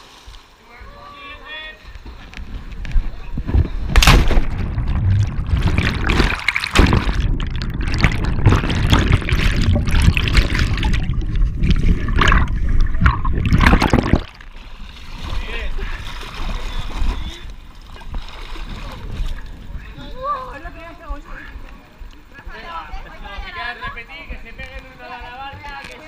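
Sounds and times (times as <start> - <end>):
body splashing into river: 3.8 - 14.5
underwater churning water and bubbles: 3.9 - 15.4.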